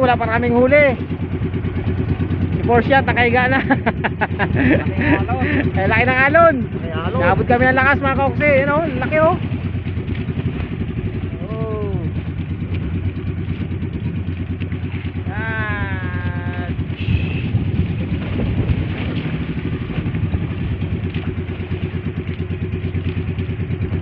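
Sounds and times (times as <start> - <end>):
boat engine running: 0.0 - 24.0
person calling out: 11.4 - 12.1, 15.2 - 17.0.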